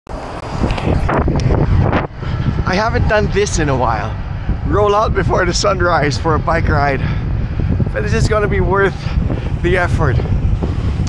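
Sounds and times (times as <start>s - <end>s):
wind buffeting microphone: 0.1s - 11.0s.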